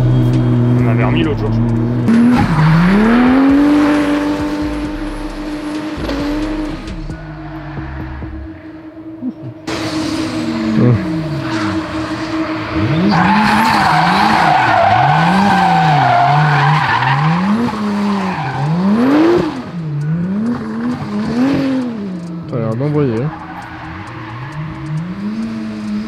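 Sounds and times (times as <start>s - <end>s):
car engine revving: 0.0s - 26.0s
tyres squealing: 10.6s - 26.0s.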